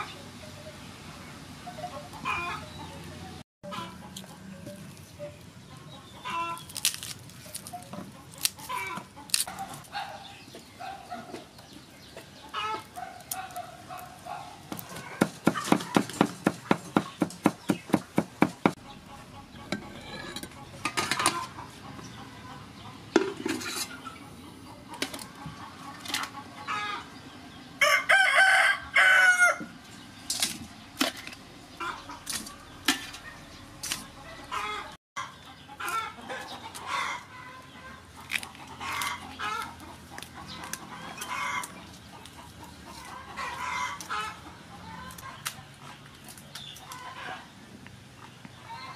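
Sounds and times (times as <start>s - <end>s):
chickens clucking: 1.6s - 47.6s
knife chopping on wooden board: 14.7s - 18.8s
rooster crowing: 27.8s - 29.7s.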